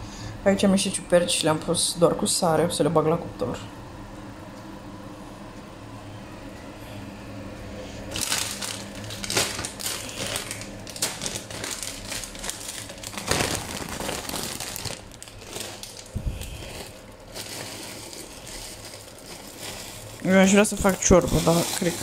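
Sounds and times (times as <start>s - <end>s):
plastic bag crinkling: 8.0s - 22.0s.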